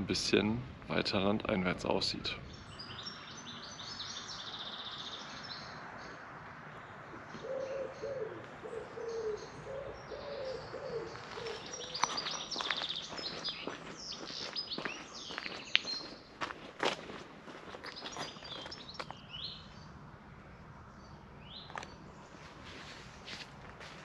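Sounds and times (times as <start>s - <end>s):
songbirds chirping and trilling: 0.0s - 24.0s
pigeon cooing: 7.4s - 12.2s.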